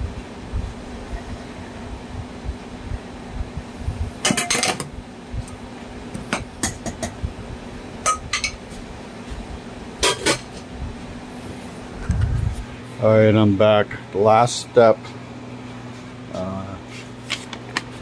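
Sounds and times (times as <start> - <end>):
low hum: 0.0 - 14.8
dishes and utensils clinking: 4.2 - 4.9, 8.1 - 8.6, 10.0 - 10.5.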